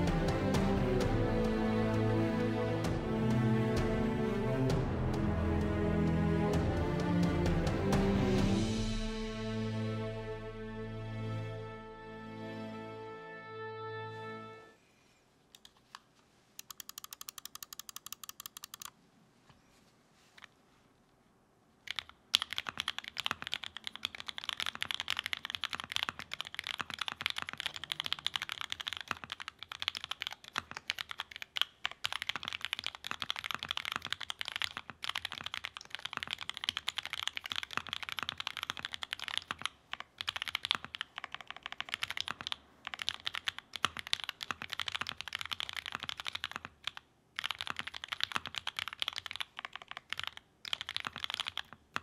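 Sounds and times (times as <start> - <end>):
fast typing on mechanical keyboard: 16.6 - 18.9, 21.9 - 52.0.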